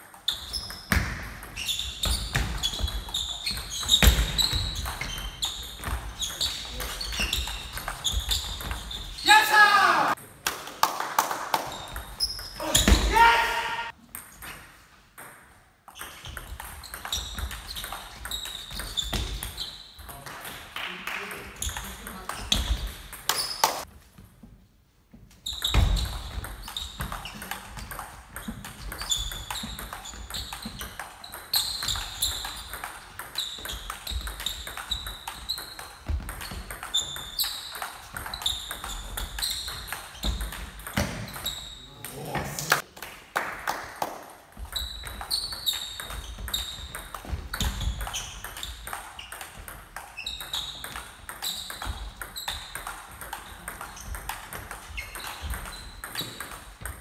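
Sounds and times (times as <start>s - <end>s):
table tennis ball on bats: 0.0s - 9.2s, 10.1s - 23.9s, 25.2s - 57.0s
ball bouncing on table: 25.6s - 41.6s, 44.5s - 57.0s.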